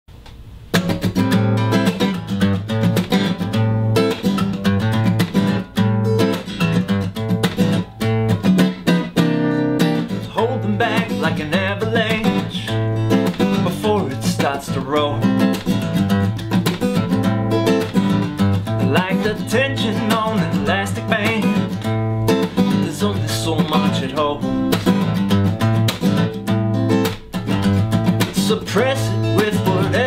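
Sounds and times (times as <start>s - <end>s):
acoustic guitar strummed: 0.6s - 30.0s
man singing: 10.2s - 15.6s, 18.7s - 21.9s, 22.5s - 24.8s, 28.2s - 30.0s.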